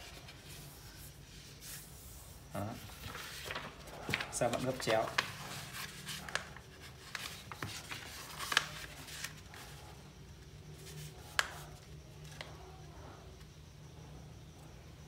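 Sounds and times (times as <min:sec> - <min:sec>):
paper rustling and crackling: 0:02.6 - 0:10.0, 0:10.7 - 0:12.6.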